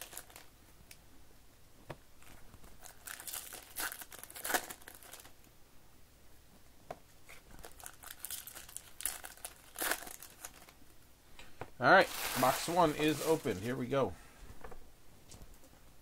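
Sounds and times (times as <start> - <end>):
card wrappers crinkling and tearing: 0.0 - 0.5, 2.3 - 5.4, 7.3 - 10.8, 11.9 - 13.8.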